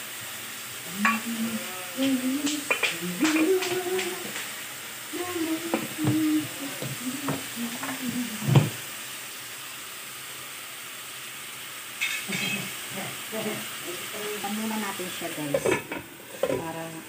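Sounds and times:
chicken sizzling in oil: 0.0s - 17.0s
voice murmuring: 0.9s - 4.4s, 5.2s - 8.7s.

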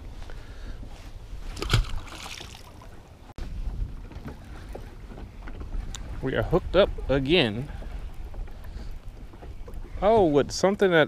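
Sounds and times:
wind rumbling on microphone: 2.7s - 10.9s.

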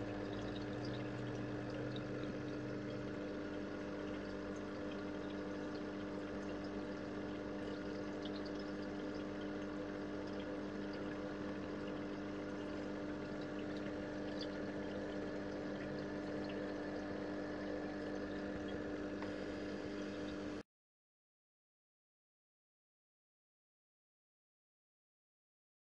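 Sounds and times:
small pump humming: 0.0s - 20.6s
water bubbling and trickling: 0.0s - 20.6s.

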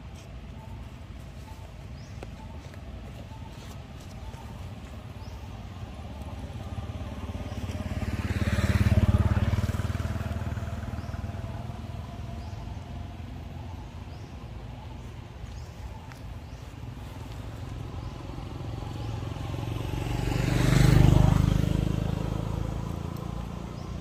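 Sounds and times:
vehicle engine passing by: 3.2s - 14.9s, 16.4s - 24.0s.

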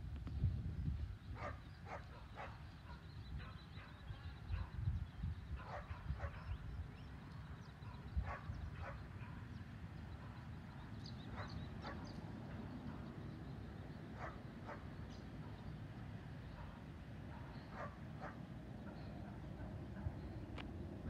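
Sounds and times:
dog barking: 1.4s - 4.8s, 5.6s - 6.5s, 7.9s - 9.5s, 11.3s - 12.2s, 14.2s - 15.6s, 16.6s - 20.2s.

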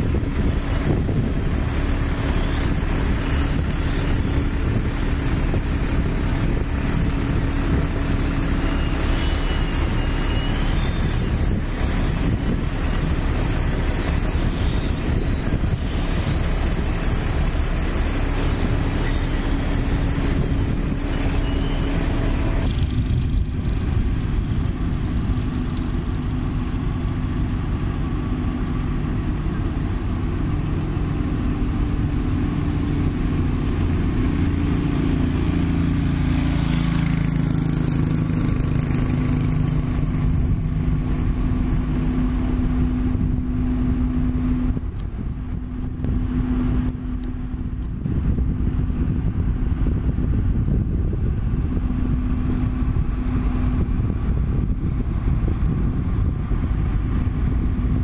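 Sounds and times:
diesel machinery running: 0.0s - 58.0s
roller diesel engine humming: 0.0s - 58.0s.

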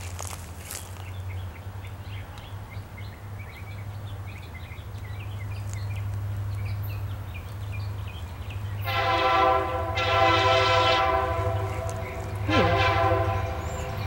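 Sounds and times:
small birds chirping: 0.0s - 8.9s, 13.1s - 14.0s.

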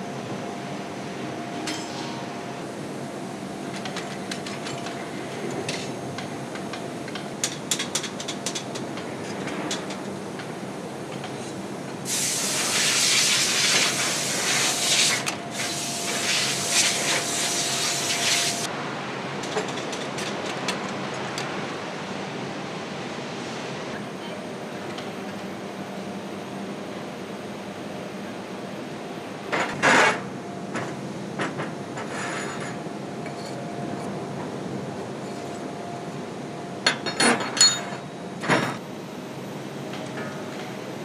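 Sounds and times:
foundry machinery noise: 1.6s - 2.7s
compressed air hissing: 12.1s - 18.7s.

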